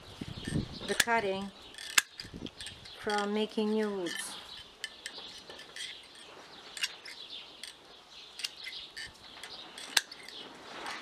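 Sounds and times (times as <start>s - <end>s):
birds chirping: 0.0s - 10.8s
pruning shears snipping: 0.9s - 7.8s.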